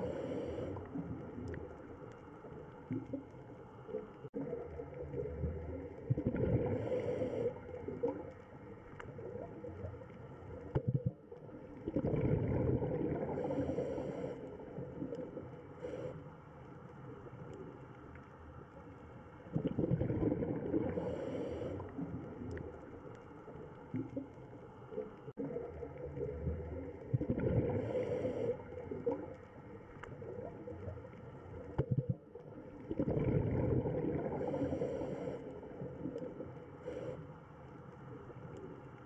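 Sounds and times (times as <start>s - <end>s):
diver breathing through regulator: 0.0s - 1.0s, 6.6s - 7.9s, 13.2s - 14.7s, 20.8s - 22.1s, 27.6s - 29.2s, 34.2s - 35.8s, 36.8s - 37.4s
bubbles gurgling underwater: 4.3s - 8.4s, 9.1s - 13.7s, 19.5s - 22.8s, 25.4s - 29.3s, 30.1s - 34.9s.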